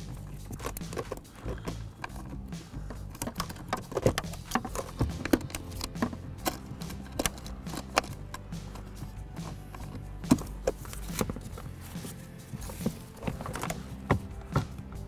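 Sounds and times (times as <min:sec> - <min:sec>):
low background music: 0:00.0 - 0:15.0
plastic housing being handled: 0:00.0 - 0:15.0
small screws clicking: 0:00.1 - 0:08.8.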